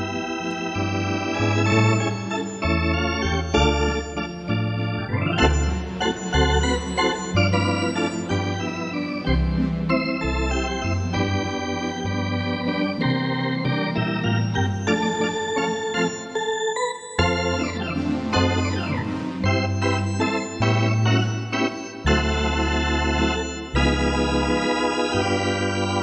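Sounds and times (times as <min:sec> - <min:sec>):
sustained organ chords: 0:00.0 - 0:26.0
stepping bass line: 0:17.2 - 0:21.5.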